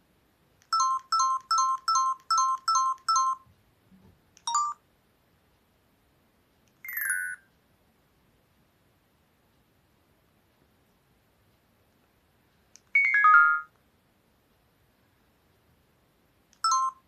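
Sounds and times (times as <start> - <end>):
phone keypad beeps: 0.7 - 3.5, 4.4 - 4.8, 12.9 - 13.7, 16.6 - 17.0.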